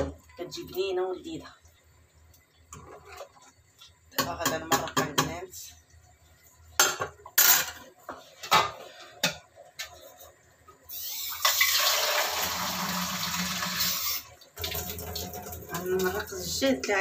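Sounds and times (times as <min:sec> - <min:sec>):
water pouring: 0:11.1 - 0:16.5.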